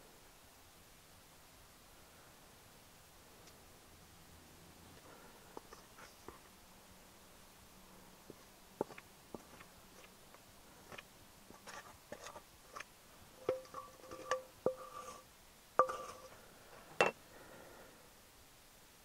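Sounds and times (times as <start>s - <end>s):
utensils tapping steel bowl: 13.4s - 15.2s, 15.8s - 16.2s.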